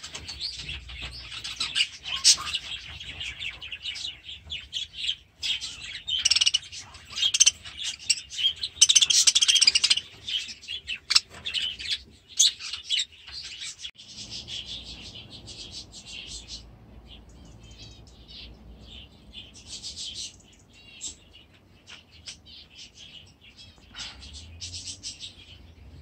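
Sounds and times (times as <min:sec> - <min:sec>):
budgerigars chattering: 0:00.4 - 0:04.2, 0:04.8 - 0:20.4.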